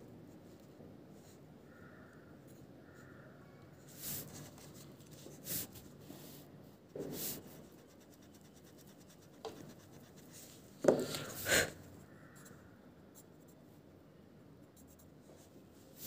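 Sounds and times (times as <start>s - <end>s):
eraser rubbing on paper: 3.9s - 6.4s, 7.0s - 11.4s.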